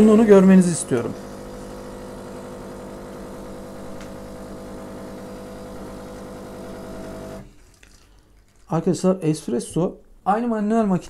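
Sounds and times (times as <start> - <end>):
espresso machine pump humming: 0.0 - 7.4.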